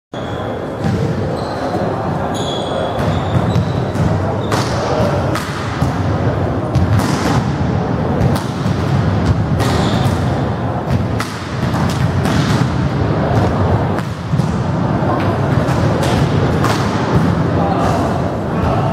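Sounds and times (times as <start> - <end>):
background din in hall: 0.1 - 18.9
volleyball smacks and bounces: 3.0 - 6.1, 6.7 - 7.6, 8.2 - 18.0.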